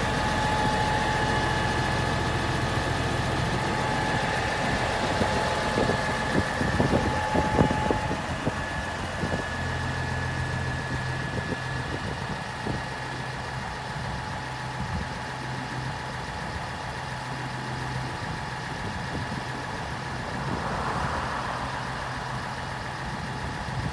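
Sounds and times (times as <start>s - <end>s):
thin whine: 0.0s - 14.4s
tractor diesel engine idling: 0.0s - 23.9s.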